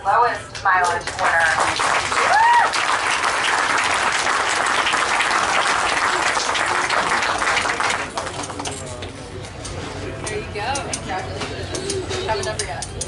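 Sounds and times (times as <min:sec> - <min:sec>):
crowd applauding: 0:01.0 - 0:08.7.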